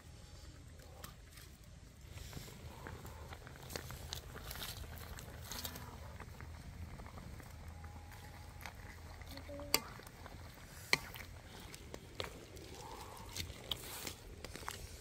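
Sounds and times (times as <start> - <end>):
soup simmering: 0.0 - 15.0
spatula stirring in metal wok: 8.8 - 14.7.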